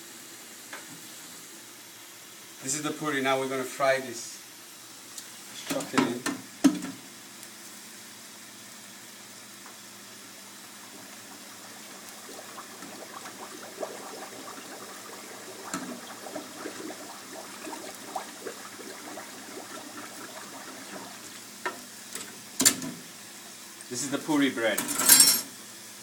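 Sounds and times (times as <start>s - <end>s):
oil bubbling hiss: 4.5s - 24.5s.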